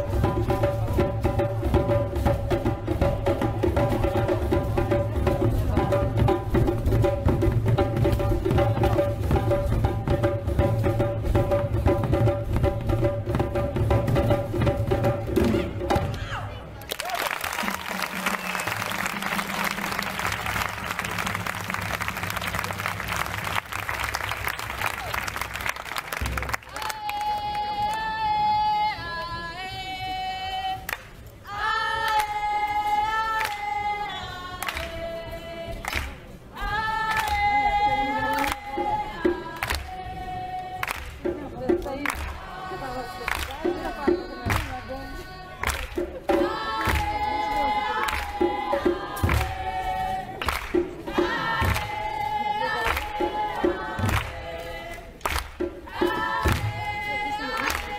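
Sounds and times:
group singing high held notes: 0:26.7 - 0:57.9.

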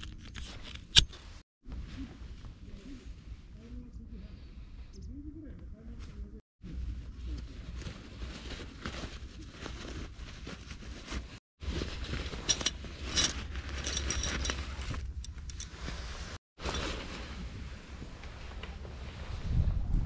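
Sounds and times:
bag rustling: 0:07.8 - 0:17.6
tent pegs clinking: 0:09.7 - 0:17.2.

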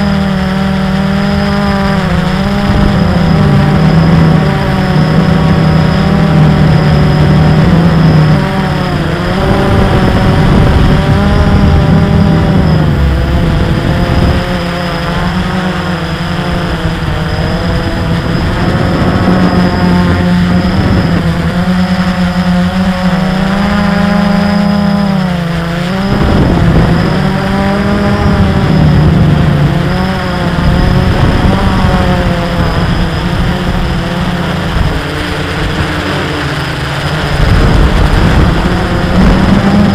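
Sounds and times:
model aircraft motor and propeller: 0:00.0 - 0:39.9.

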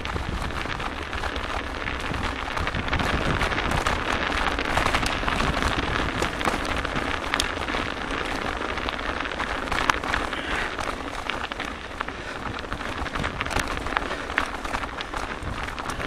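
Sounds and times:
bike rattling and knocking: 0:00.0 - 0:16.0
bike tyres on frozen gravel: 0:00.0 - 0:16.0
wind rumbling on microphone: 0:00.0 - 0:16.0.

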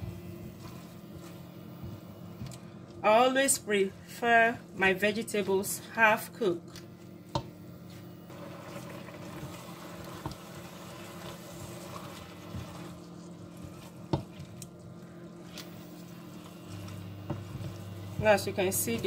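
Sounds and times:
food squelching while stirred: 0:00.0 - 0:03.0, 0:06.7 - 0:19.0
faint steady hum: 0:00.0 - 0:19.0
simmering liquid: 0:08.3 - 0:18.6.

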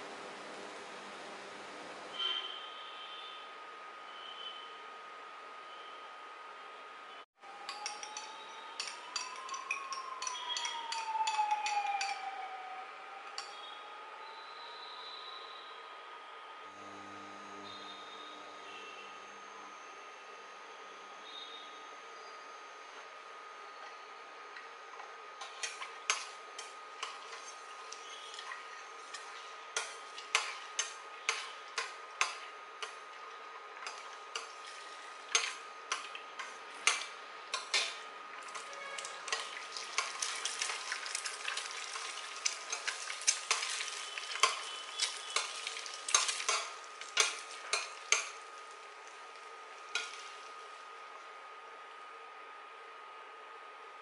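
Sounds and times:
metal spoon scraping pot: 0:25.4 - 0:33.0, 0:35.3 - 0:40.1
eggs sizzling in hot oil: 0:25.4 - 0:50.8.

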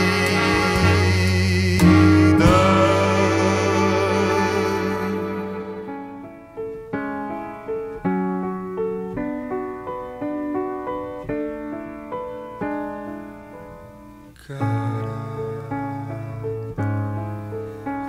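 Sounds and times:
slow solo piano: 0:00.0 - 0:18.0.

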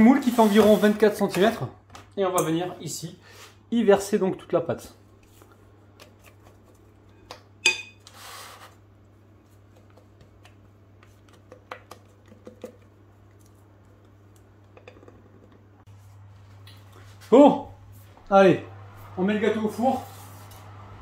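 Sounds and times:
low steady hum: 0:08.8 - 0:21.0.

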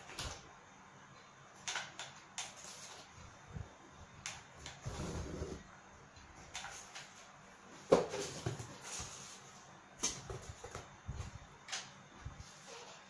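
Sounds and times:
cardboard scraping: 0:04.8 - 0:05.6.

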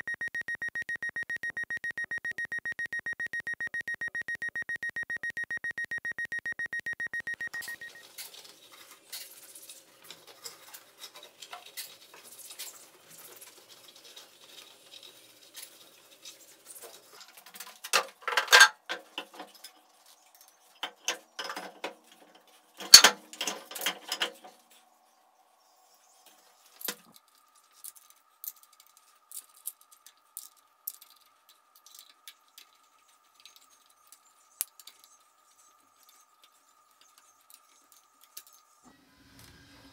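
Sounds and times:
metal parts and tools clicking: 0:13.6 - 0:24.6, 0:26.7 - 0:38.8.

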